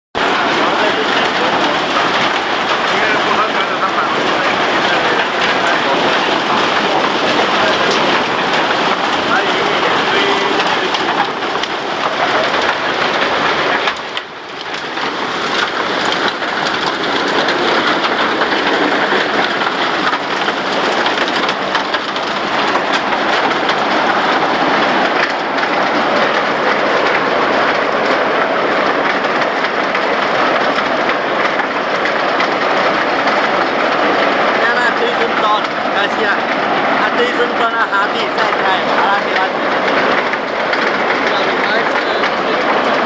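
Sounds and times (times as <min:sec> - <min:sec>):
grinding mill rushing: 0:00.2 - 0:43.0.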